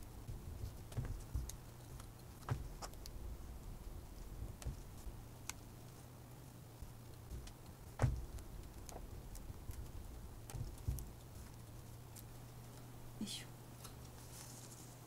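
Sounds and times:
hands packing moss ticks: 0.0 - 13.1
louder knock: 8.0 - 8.4.

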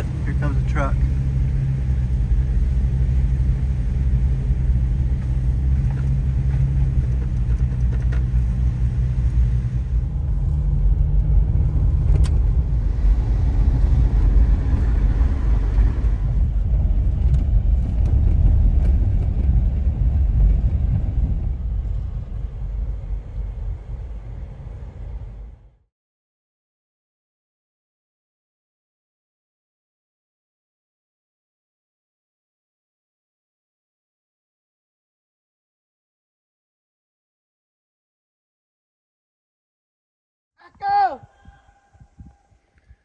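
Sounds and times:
tyres rumbling on road: 0.0 - 25.8
vehicle engine hum: 0.0 - 25.9.

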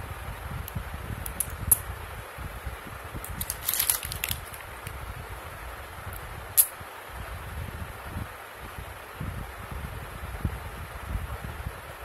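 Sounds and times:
fan hum: 0.0 - 12.0
magnets clicking together: 1.2 - 1.8, 3.2 - 5.0, 6.1 - 6.7.

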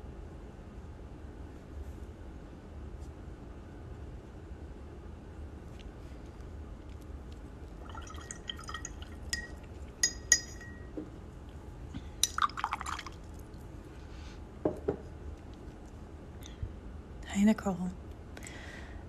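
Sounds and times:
brush clinking against glass: 7.8 - 11.1, 12.2 - 13.1.

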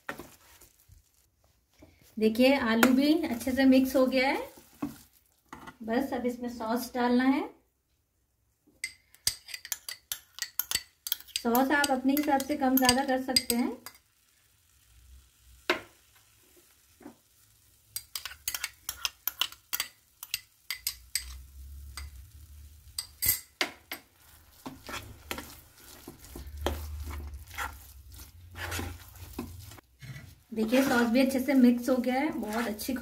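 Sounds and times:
metal spatula scraping a pan: 17.6 - 33.0.

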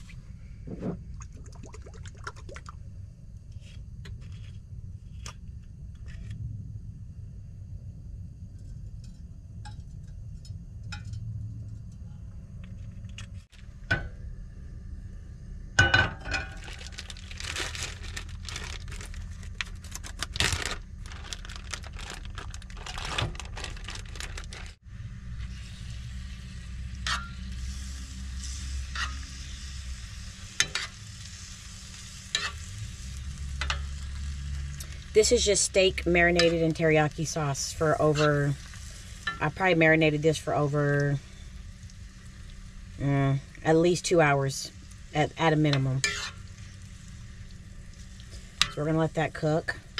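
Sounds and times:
low steady hum: 0.0 - 49.9
meat sizzling in a frying pan: 25.4 - 35.2, 38.2 - 43.3.

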